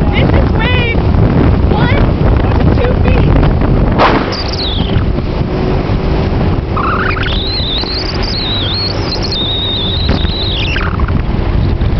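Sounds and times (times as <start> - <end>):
outboard engine droning: 0.0 - 11.9
wind and water rushing: 0.0 - 11.9
high wavering whistle: 6.8 - 11.0.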